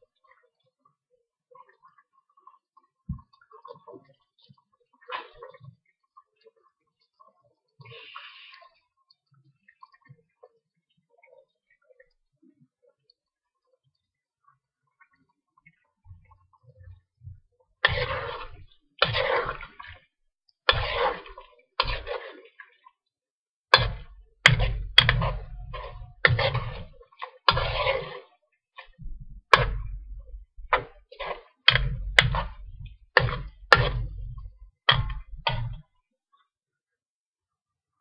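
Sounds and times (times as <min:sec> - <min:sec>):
spoon stirring sauce in wok: 0:17.8 - 0:20.0, 0:20.7 - 0:22.7, 0:23.7 - 0:35.8.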